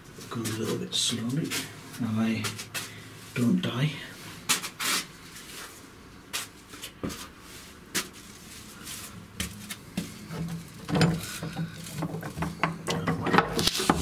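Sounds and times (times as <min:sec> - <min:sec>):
footsteps going up stairs: 0:06.3 - 0:08.3, 0:08.9 - 0:12.8.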